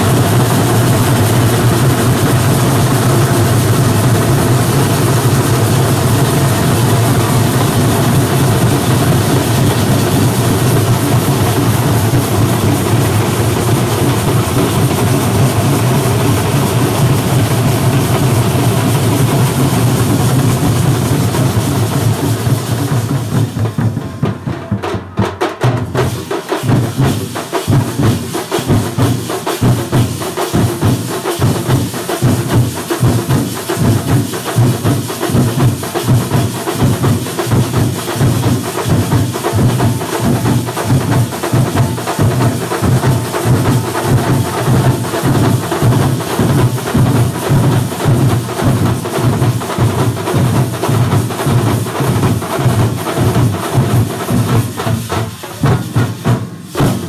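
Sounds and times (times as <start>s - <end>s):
deep drum beats: 0.0s - 57.0s
sharp drumstick strokes: 52.5s - 57.0s.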